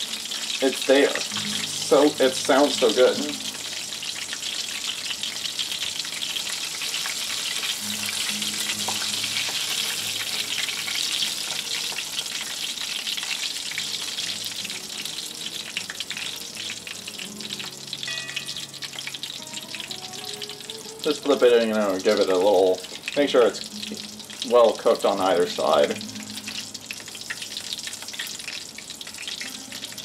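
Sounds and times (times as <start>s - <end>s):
chicken deep frying in oil: 0.0s - 30.0s.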